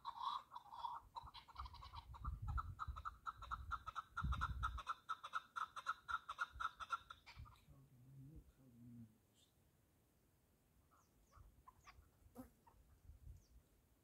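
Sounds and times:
partridge clucking call: 0.0 - 7.7.

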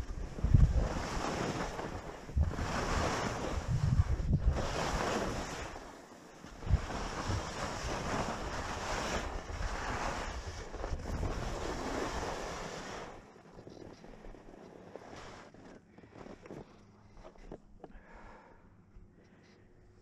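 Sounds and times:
wind buffeting microphone: 0.0 - 5.8, 6.6 - 12.5
skis carving on snow: 0.0 - 17.5.

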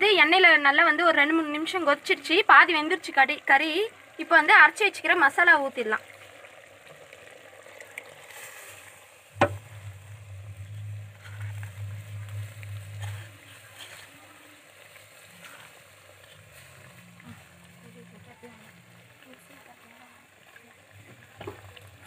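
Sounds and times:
faint sizzle of frying: 0.0 - 22.0
low rumble: 9.3 - 15.0
sharp knock: 9.4 - 9.7
paste scraped from clay bowl: 10.3 - 14.2.

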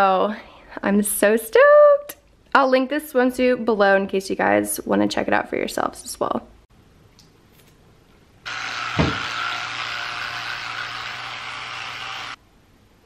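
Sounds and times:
electric toothbrush buzzing: 8.5 - 12.4.

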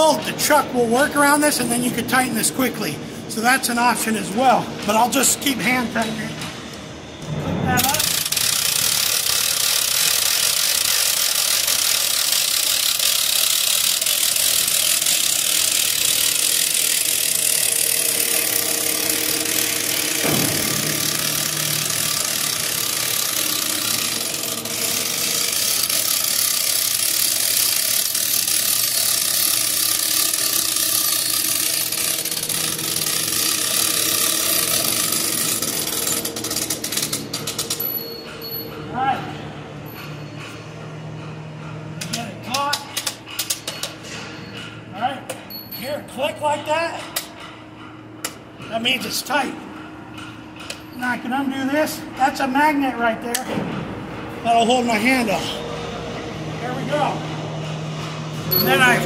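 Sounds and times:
ratchet clicking: 7.8 - 38.8, 42.0 - 44.0.

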